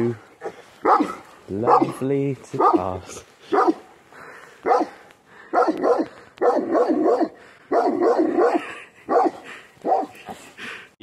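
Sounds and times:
dog barking: 0.4 - 2.0, 2.6 - 2.9, 3.5 - 3.9, 4.6 - 10.3.

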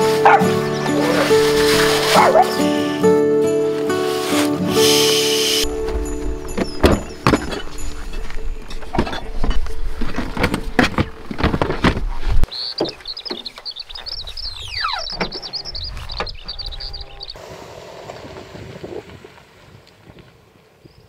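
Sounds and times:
knocks and thumps of gear loading: 5.8 - 13.7
bird chirping rapidly: 12.5 - 17.4.

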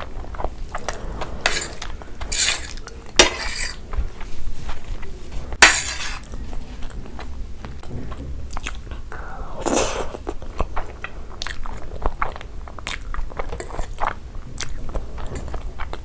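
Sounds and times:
fork scraping on a plate: 0.8 - 3.8, 5.6 - 6.3.

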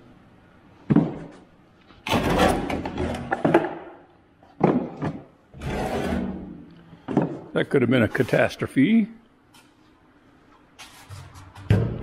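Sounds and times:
objects falling and clattering: 2.0 - 4.0.

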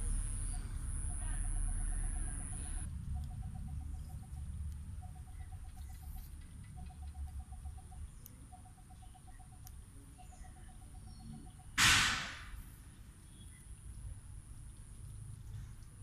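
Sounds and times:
sudden loud rushing noise: 11.8 - 12.6.

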